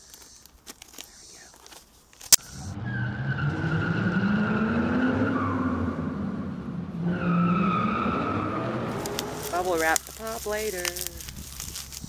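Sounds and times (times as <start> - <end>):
paper package tearing: 0.0 - 2.4, 8.9 - 12.0
packing tape peeling screech: 8.9 - 12.0.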